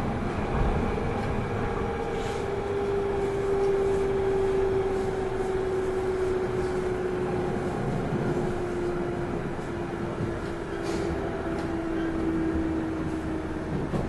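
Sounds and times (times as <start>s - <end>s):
wheels rumbling on rail: 0.0s - 14.0s.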